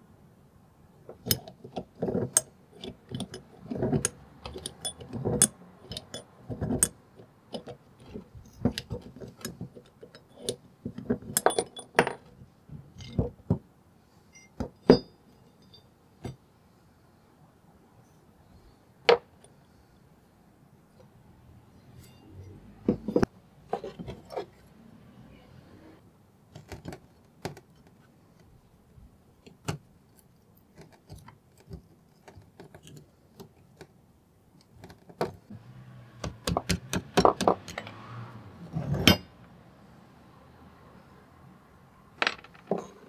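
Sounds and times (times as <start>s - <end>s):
iron parts clinking and knocking: 1.1s - 13.5s, 14.4s - 16.4s, 22.0s - 24.5s, 36.3s - 38.0s, 42.2s - 43.0s.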